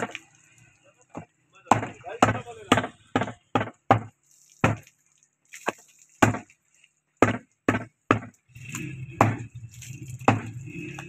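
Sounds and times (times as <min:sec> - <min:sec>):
cleaver chopping meat on wooden block: 0:01.2 - 0:04.9, 0:06.2 - 0:06.5, 0:07.2 - 0:08.4, 0:09.1 - 0:09.5, 0:10.2 - 0:10.6.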